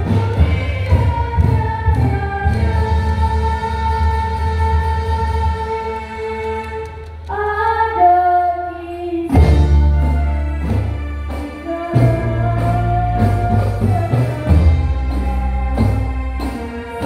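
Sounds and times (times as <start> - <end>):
children singing: 0.0 - 17.0
frame drums playing: 9.3 - 17.0.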